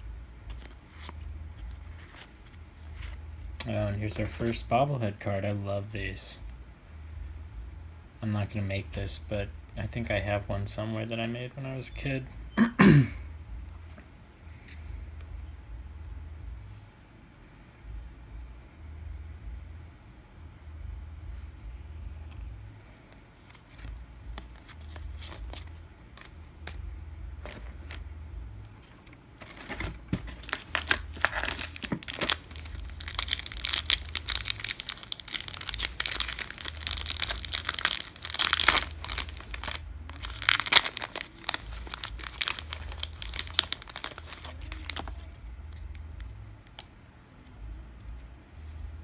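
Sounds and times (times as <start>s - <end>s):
wrapper crinkling and tearing: 30.3s - 45.3s.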